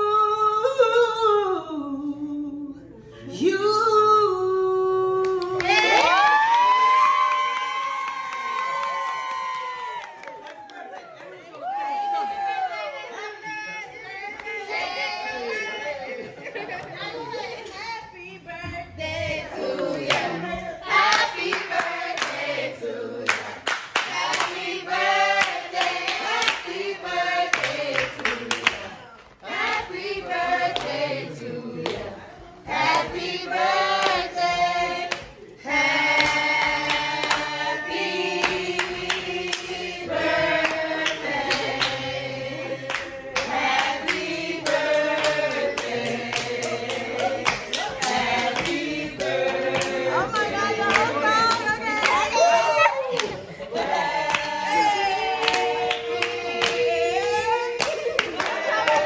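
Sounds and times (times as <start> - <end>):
group of people singing: 0.0 - 6.8, 12.3 - 59.0
people clapping: 5.2 - 13.1, 19.7 - 31.2, 32.8 - 59.0.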